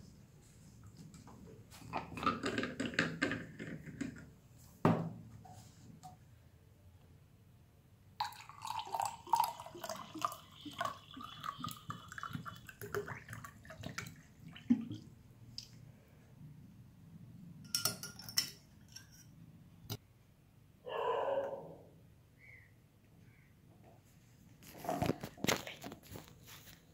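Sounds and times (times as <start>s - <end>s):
water pouring into glass: 8.2s - 15.0s.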